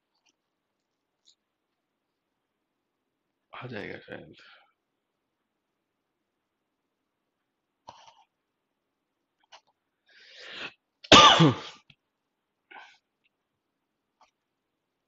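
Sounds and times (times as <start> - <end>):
man breathing in: 10.1 - 10.8
man coughing: 11.1 - 11.8.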